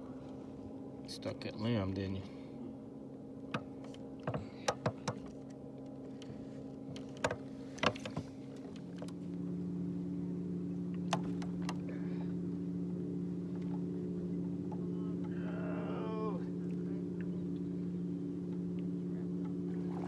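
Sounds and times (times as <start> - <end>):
small electric motor humming: 1.7 - 20.0.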